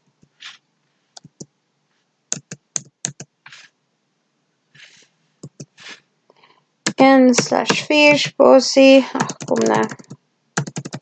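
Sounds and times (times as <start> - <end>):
keyboard keys clicking: 2.3 - 3.3, 9.2 - 11.0.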